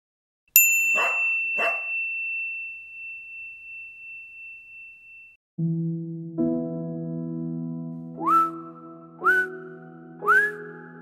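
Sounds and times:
high ringing tone: 0:00.6 - 0:05.4.

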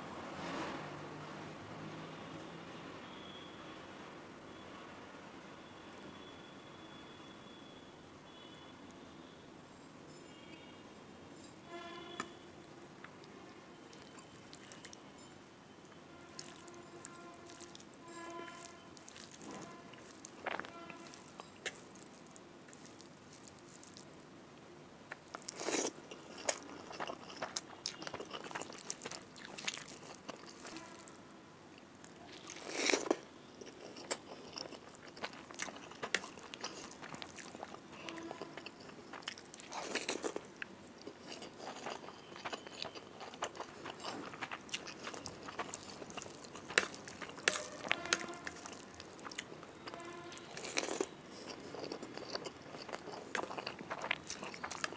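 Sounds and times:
chewing with wet mouth sounds: 0:13.0 - 0:15.4, 0:16.3 - 0:24.2, 0:25.1 - 0:31.2, 0:31.8 - 0:54.9
crunchy bite: 0:32.4 - 0:54.9.

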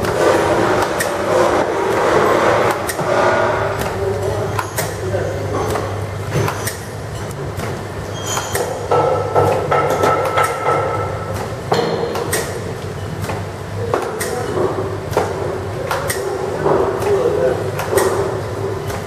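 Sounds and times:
low machine hum: 0:00.0 - 0:19.0.

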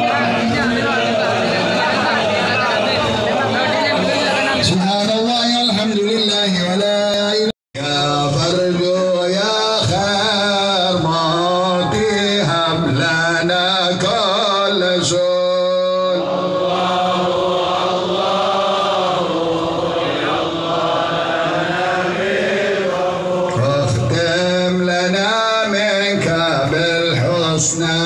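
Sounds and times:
voices chanting: 0:00.0 - 0:04.8, 0:16.2 - 0:24.2.

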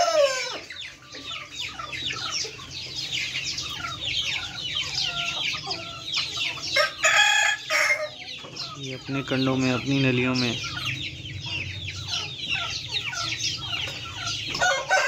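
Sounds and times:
chickens clucking and calling: 0:00.0 - 0:15.0.

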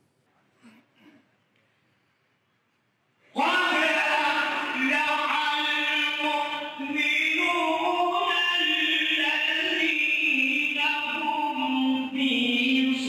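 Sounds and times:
man chanting recitation: 0:03.3 - 0:13.0.

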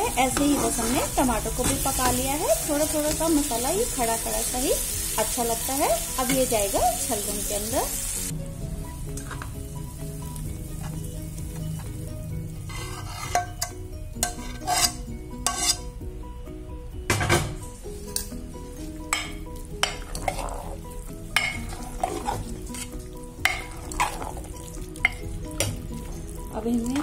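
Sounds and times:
metal spoon scraping and clinking: 0:12.6 - 0:15.9, 0:18.1 - 0:18.4, 0:19.1 - 0:20.8, 0:21.4 - 0:24.4.

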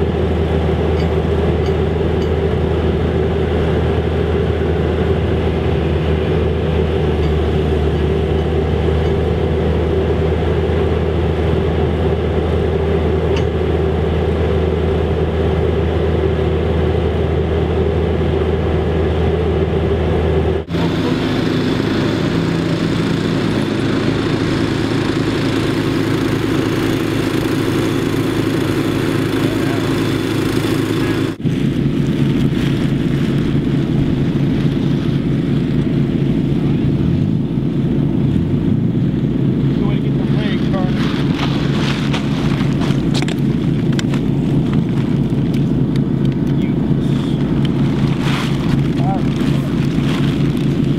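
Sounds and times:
excavator engine running: 0:00.0 - 0:50.9
auger working in sand: 0:19.2 - 0:50.9.

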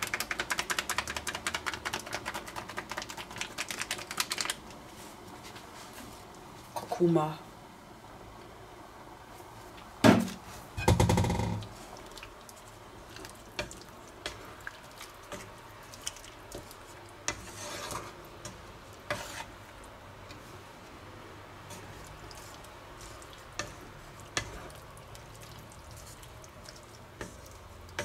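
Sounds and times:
wooden spatula stirring sauce: 0:00.2 - 0:04.3, 0:11.6 - 0:28.0
spatula scraping pan: 0:16.5 - 0:19.6, 0:21.6 - 0:24.9, 0:25.9 - 0:28.0.

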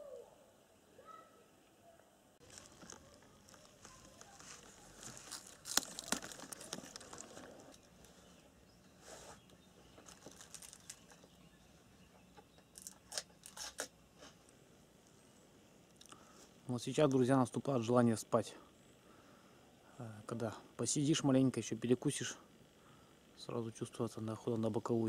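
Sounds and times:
packaging crinkling: 0:02.4 - 0:08.3, 0:10.0 - 0:11.2
short crackles: 0:02.4 - 0:08.4.

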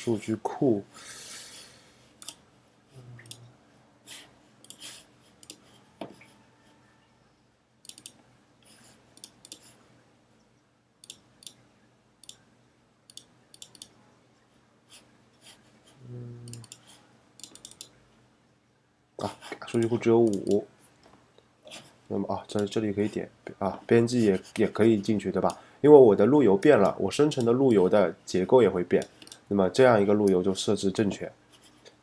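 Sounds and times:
computer mouse clicking: 0:02.2 - 0:02.4, 0:03.2 - 0:03.5, 0:04.6 - 0:06.3, 0:07.8 - 0:08.2, 0:09.1 - 0:09.8, 0:11.0 - 0:11.6, 0:12.2 - 0:12.4, 0:13.1 - 0:14.0, 0:16.5 - 0:18.0, 0:19.7 - 0:20.6, 0:29.0 - 0:29.5.

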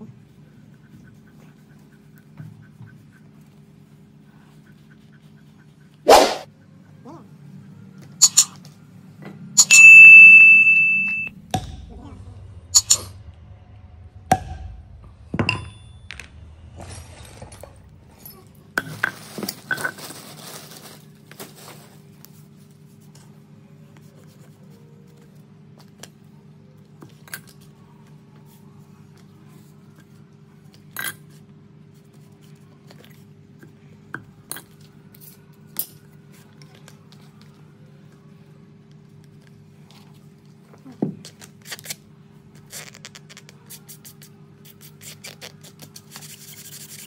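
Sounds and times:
steady low hum: 0:00.0 - 0:47.0
mallet striking metal punch: 0:09.6 - 0:13.2, 0:14.2 - 0:16.3.

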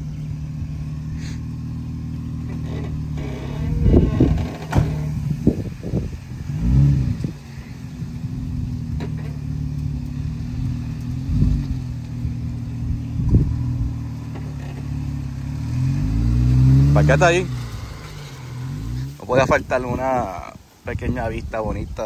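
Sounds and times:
off-road vehicle engine revving: 0:00.0 - 0:20.5.

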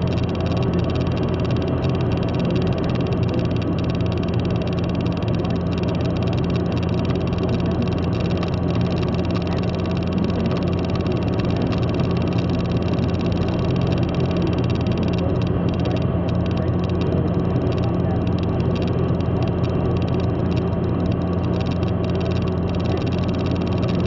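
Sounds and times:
low engine drone: 0:00.0 - 0:24.0.

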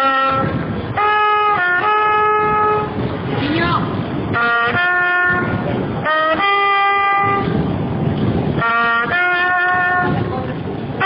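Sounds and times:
trumpet playing slow melody: 0:00.0 - 0:03.0, 0:04.3 - 0:07.7, 0:08.6 - 0:10.3.

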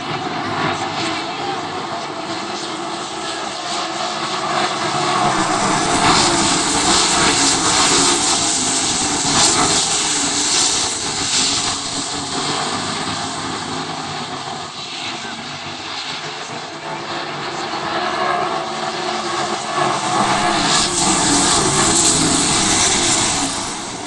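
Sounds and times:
race car engines roaring past: 0:00.0 - 0:24.0.

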